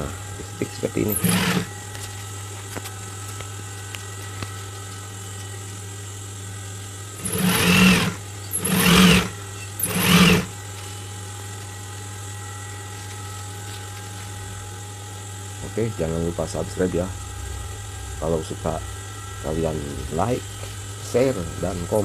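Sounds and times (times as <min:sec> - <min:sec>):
steady low hum: 0:00.0 - 0:22.0
sewing machine stitching: 0:01.1 - 0:01.7, 0:07.2 - 0:10.5.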